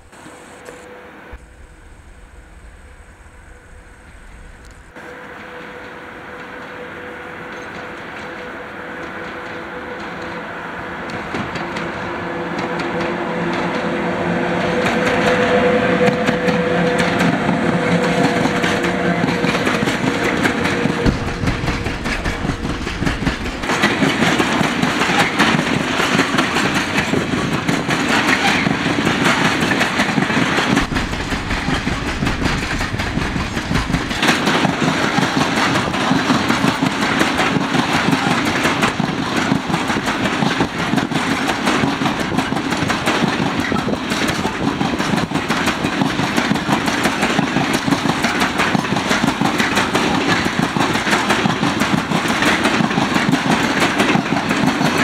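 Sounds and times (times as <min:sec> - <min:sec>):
freight train rumbling: 0:00.0 - 0:55.0
wheels clattering on rails: 0:11.1 - 0:55.0.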